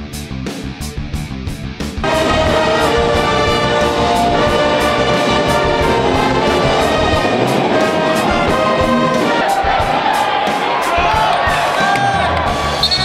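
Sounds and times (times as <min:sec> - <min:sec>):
brass band playing: 0:02.0 - 0:11.8.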